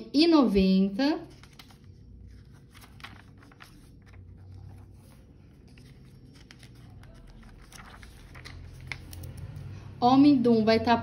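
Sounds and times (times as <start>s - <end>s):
pages rustling and turning: 1.2s - 9.7s.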